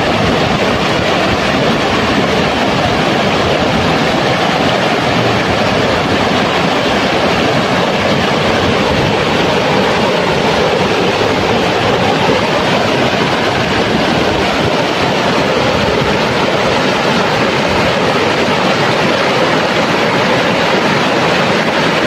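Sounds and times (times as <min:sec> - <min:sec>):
river water rushing over stones: 0:00.0 - 0:22.0.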